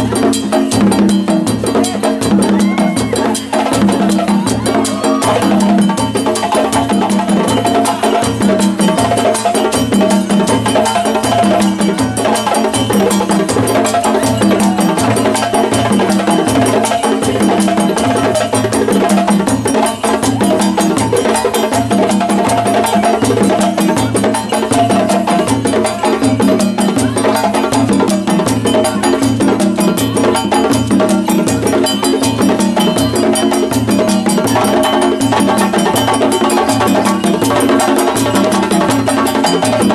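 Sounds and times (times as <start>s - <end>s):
djembes slapped by hand: 0.0s - 39.9s.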